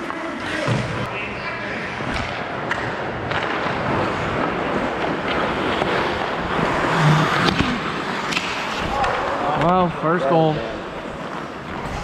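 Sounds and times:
skate blades scraping on ice: 0:03.3 - 0:09.6.

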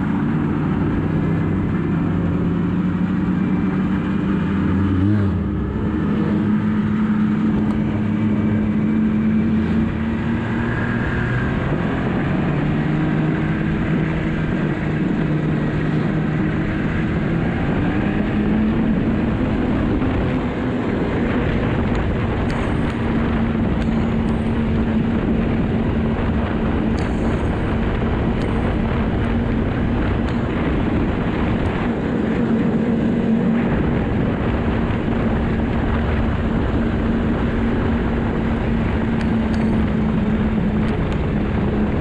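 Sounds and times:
snowmobile engine running: 0:00.0 - 0:42.0.

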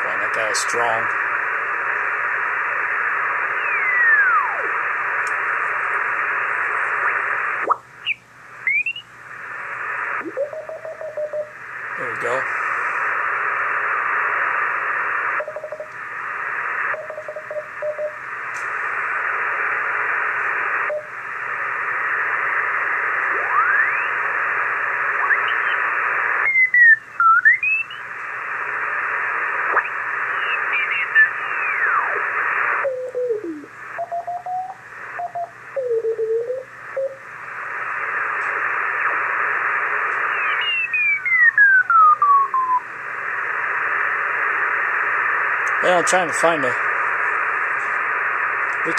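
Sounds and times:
radio band noise hiss: 0:00.0 - 0:48.9.

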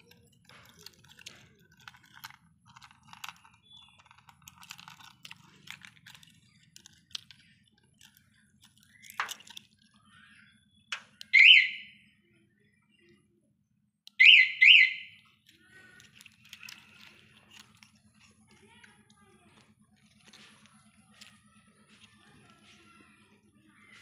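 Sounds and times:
high-pitched electronic alarm siren: 0:11.2 - 0:12.0, 0:14.2 - 0:15.2
handling rustle: 0:15.4 - 0:23.3.

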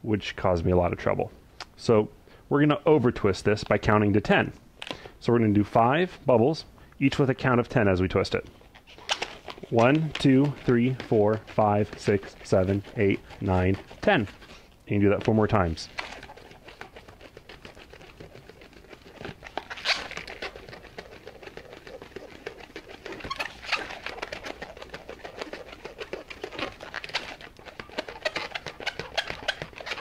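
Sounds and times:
balloon squeaking as twisted: 0:08.2 - 0:30.0.

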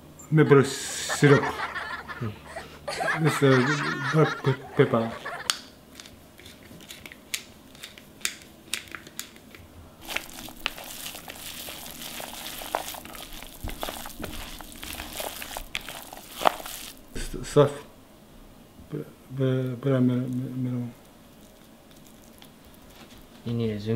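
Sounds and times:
pepper mill grinding: 0:04.9 - 0:09.3, 0:10.0 - 0:17.1, 0:20.3 - 0:23.0
hands kneading meat in plastic bowl: 0:10.0 - 0:17.5.

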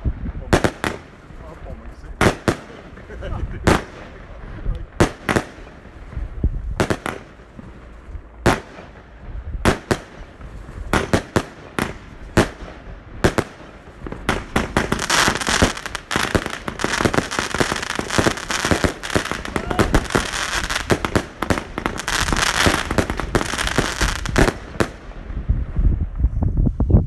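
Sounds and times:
rapid crackling pops: 0:09.7 - 0:25.0.

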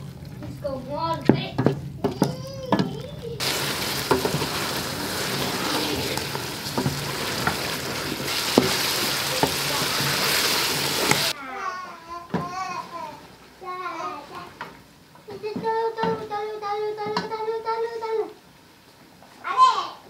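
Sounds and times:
food sizzling in oil: 0:00.0 - 0:11.4
wooden spoon knocking against pot: 0:01.2 - 0:02.9.

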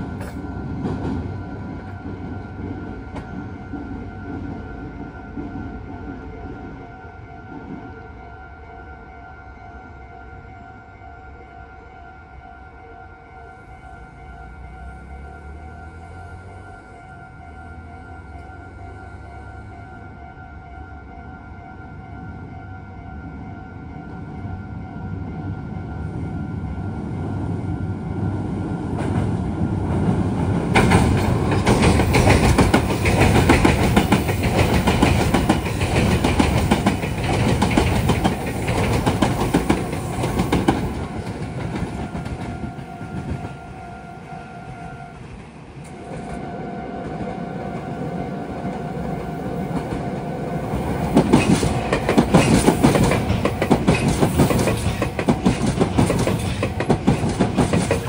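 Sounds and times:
level-crossing alarm ringing: 0:00.0 - 0:58.0
train rumbling across steel bridge: 0:00.0 - 0:58.0
train wheels clattering over rail joints: 0:30.0 - 0:43.6, 0:50.8 - 0:58.0.

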